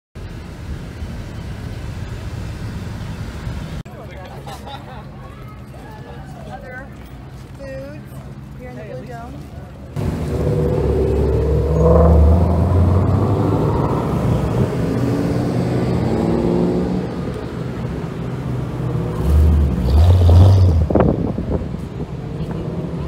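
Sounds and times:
cars driving past revving: 10.0 - 23.0.

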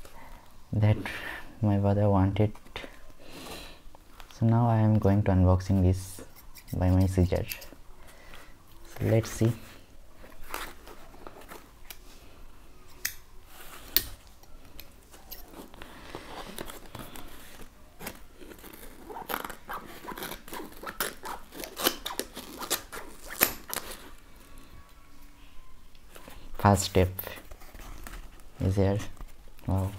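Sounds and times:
scissors cutting cardboard box tape: 18.0 - 24.0.

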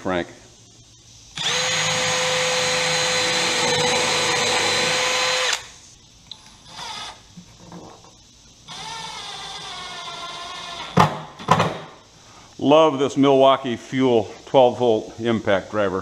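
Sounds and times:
impact driver motor whining: 1.4 - 5.7.

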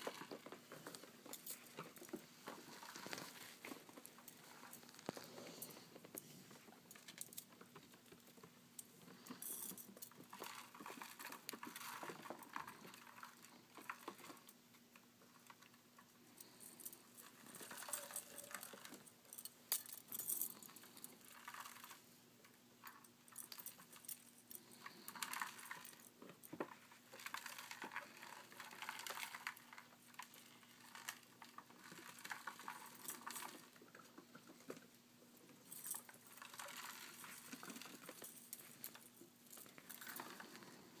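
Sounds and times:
rats scrambling over blanket: 0.0 - 8.0.

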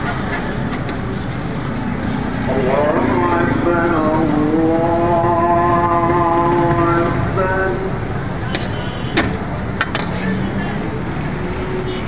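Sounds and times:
street noise roar: 0.0 - 12.0
person singing long note: 2.5 - 8.0.

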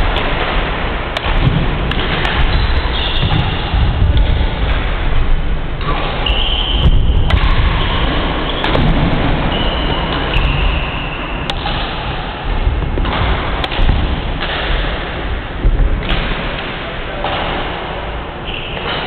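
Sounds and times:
racket striking shuttlecock: 0.2 - 3.6, 11.4 - 17.6
steady low rumble: 11.8 - 17.1.

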